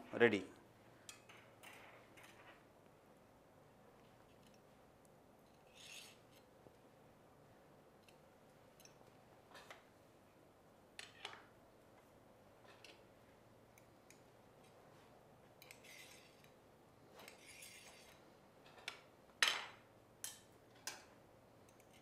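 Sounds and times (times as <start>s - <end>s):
metal skewer scraping on plate: 5.5s - 6.4s, 15.6s - 16.5s, 17.2s - 18.2s.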